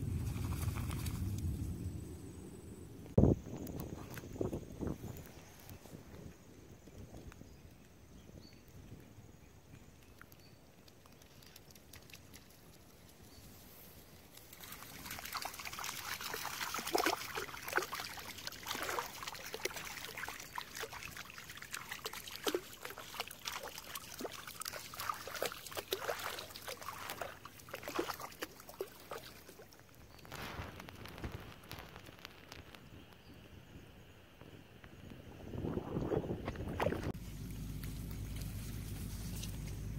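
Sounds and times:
dog wading through shallow water: 14.3s - 30.0s.

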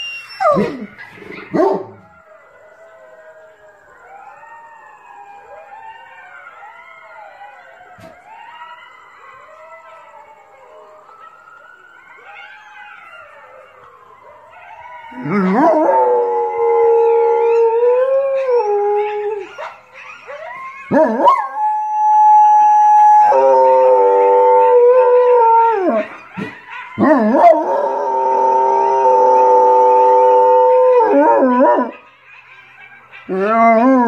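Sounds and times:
dog howling: 12.1s - 34.0s.

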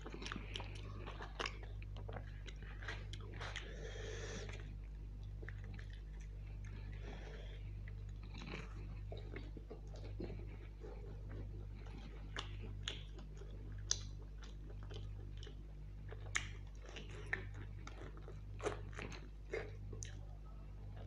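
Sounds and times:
close-up chewing with wet smacks: 0.0s - 3.8s, 4.4s - 21.0s
steady low hum: 0.0s - 21.0s.

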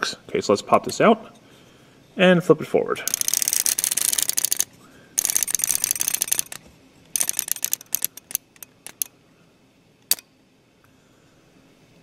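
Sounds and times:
flip clock leaves clicking: 3.1s - 6.6s, 7.2s - 9.1s.

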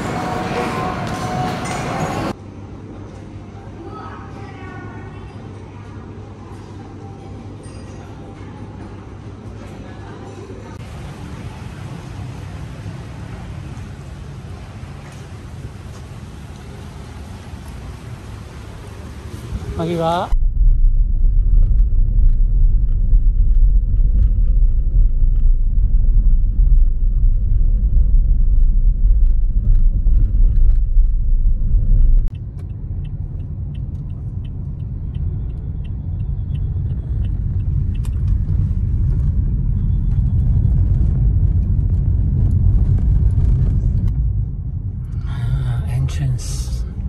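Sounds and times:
car interior road and engine rumble: 10.8s - 47.0s.

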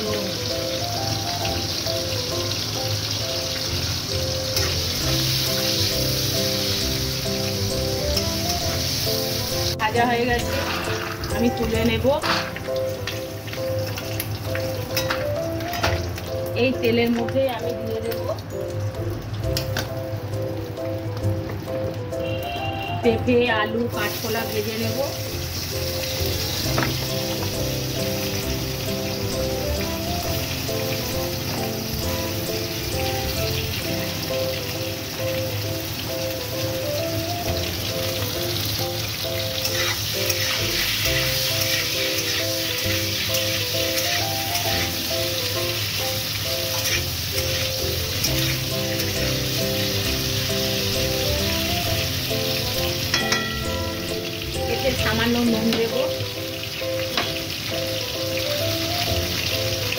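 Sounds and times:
background music: 0.0s - 59.9s
vegetables sizzling in hot oil: 0.0s - 59.9s
metal spatula turning food: 10.4s - 16.3s, 39.2s - 45.1s, 46.4s - 51.2s
spatula knocking pan: 53.1s - 53.7s.

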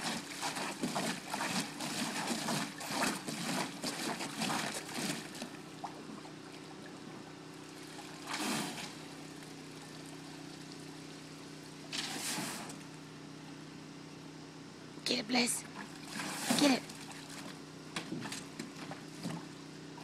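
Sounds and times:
dog splashing in water: 0.0s - 6.0s, 7.9s - 9.0s, 15.8s - 17.5s.

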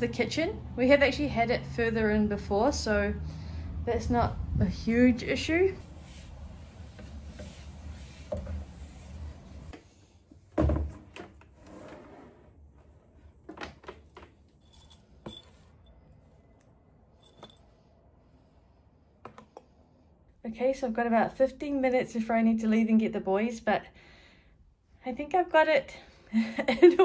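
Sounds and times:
cloth rubbing over surface: 5.6s - 9.7s
clicks and clinks of objects: 17.2s - 17.6s.

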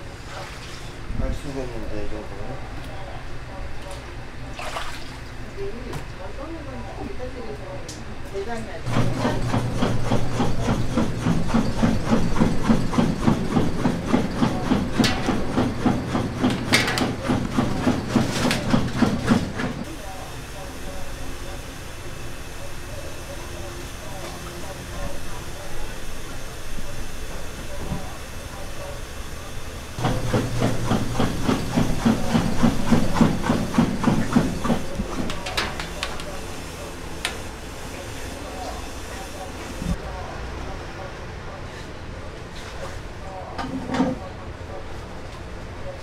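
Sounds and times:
machine running rhythmically: 8.9s - 19.9s, 29.6s - 35.4s.

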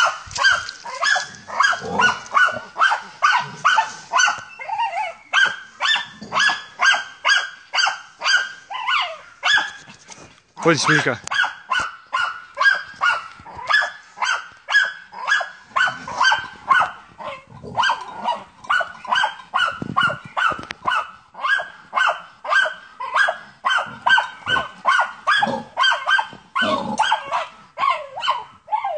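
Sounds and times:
dog barking rapidly: 0.0s - 4.4s, 5.3s - 9.8s, 10.6s - 28.5s.

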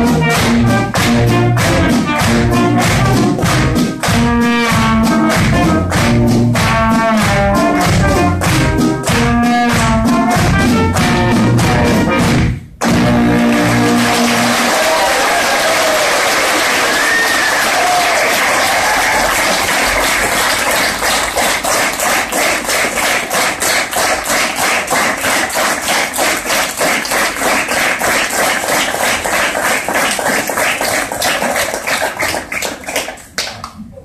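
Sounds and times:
rhythmic clapping in unison: 0.0s - 33.8s
audience applauding: 13.2s - 33.8s.

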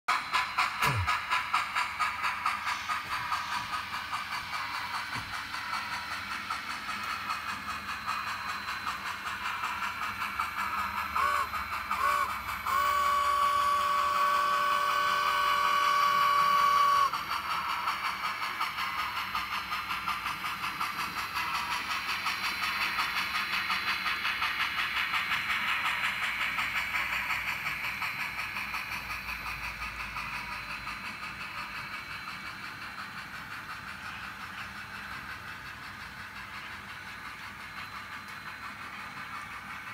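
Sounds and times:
model steam exhaust chuffs: 0.1s - 39.9s
model train whistle: 11.2s - 17.2s.

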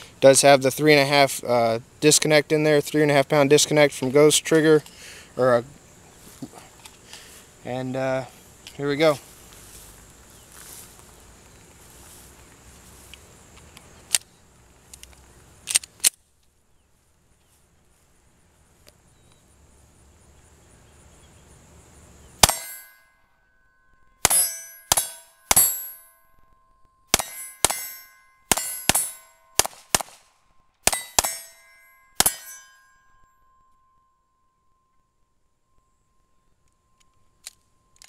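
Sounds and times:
pistol shots: 22.4s - 22.9s, 24.2s - 25.8s, 27.1s - 32.6s
steel target ringing: 22.4s - 37.0s.

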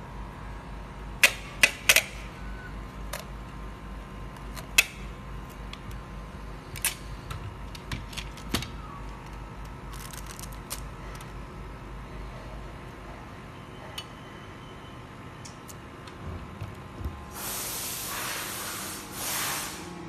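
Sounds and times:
steady low hum: 0.0s - 20.0s
packing tape snapping: 4.3s - 6.0s, 6.7s - 7.1s, 7.7s - 11.3s.

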